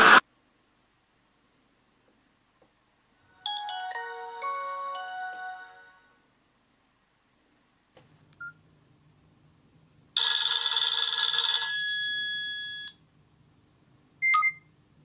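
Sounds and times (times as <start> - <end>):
loud phone ringtone: 10.2 - 13.0.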